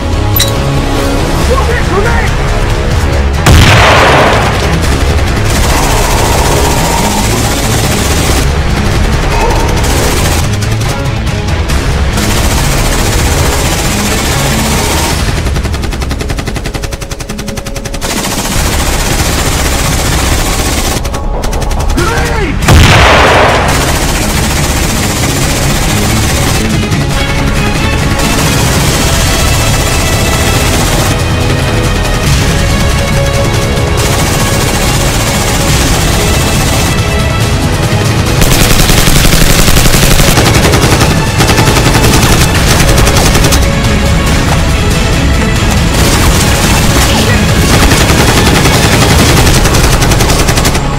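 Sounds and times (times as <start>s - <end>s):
automatic rifle fire: 3.5s - 6.6s, 22.7s - 26.3s
loud blast: 22.6s - 23.9s
automatic gunfire bursts: 28.1s - 32.2s, 33.1s - 37.6s, 38.4s - 44.0s, 45.9s - 50.9s.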